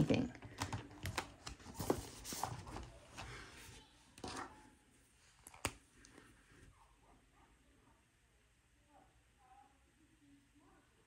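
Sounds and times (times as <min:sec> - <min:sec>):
paper rustling: 0:00.6 - 0:04.6.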